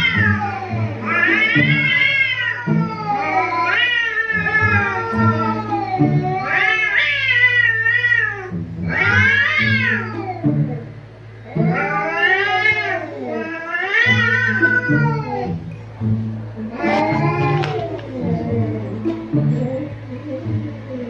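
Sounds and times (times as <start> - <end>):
cats meowing: 0.0 - 15.8, 16.6 - 21.0
steady low hum: 14.5 - 21.0.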